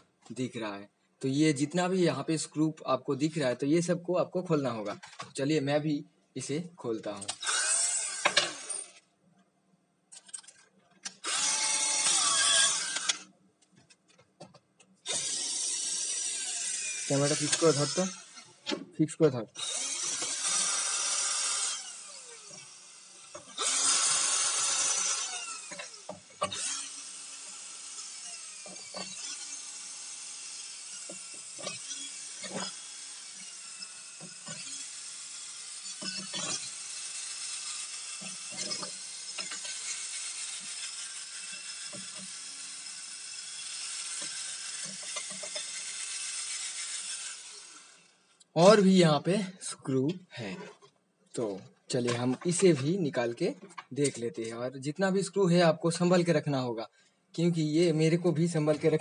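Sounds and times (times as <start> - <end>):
electric screwdriver whirring: 7.3 - 9.0, 11.1 - 13.3, 15.0 - 18.8, 19.6 - 48.2.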